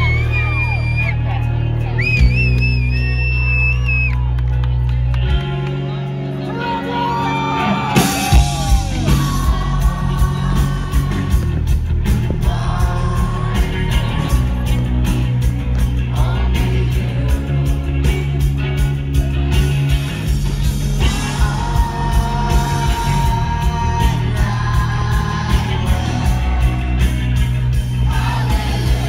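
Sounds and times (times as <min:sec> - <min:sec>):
rock band playing live: 0:00.0 - 0:29.0
person singing: 0:06.5 - 0:19.9, 0:21.0 - 0:29.0.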